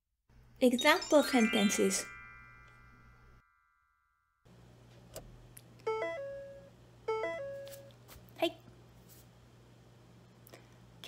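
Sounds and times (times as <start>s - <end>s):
ringing chime: 0.6s - 4.4s
rising two-note electronic chime: 0.8s - 4.3s.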